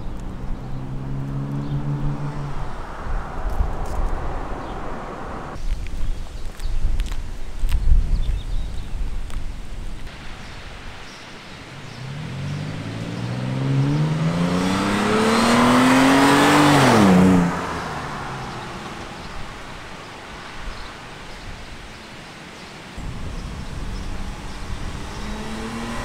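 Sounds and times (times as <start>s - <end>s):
truck exhaust accelerating past: 11.8s - 19.5s, 23.0s - 26.0s.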